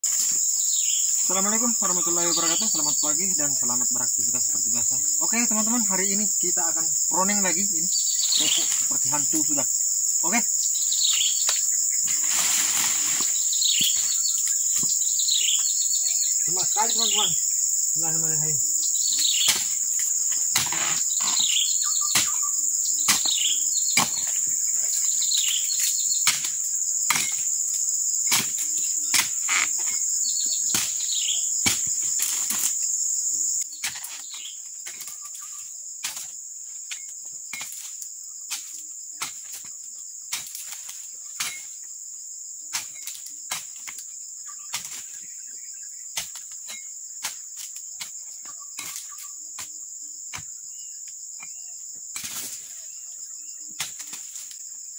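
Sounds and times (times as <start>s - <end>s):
high-pitched insect drone: 0.0s - 54.9s
chisel chopping palm fronds: 19.1s - 21.5s, 22.1s - 22.4s, 23.0s - 24.5s, 25.4s - 27.5s, 28.2s - 30.0s, 31.6s - 32.8s, 46.2s - 48.1s, 53.8s - 54.6s.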